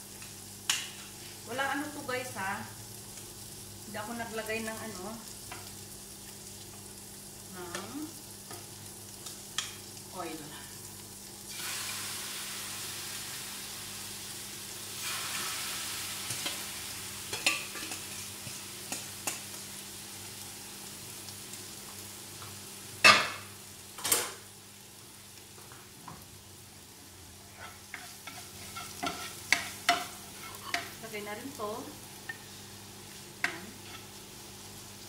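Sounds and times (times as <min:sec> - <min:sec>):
chicken sizzling in frying pan: 0:00.0 - 0:35.0.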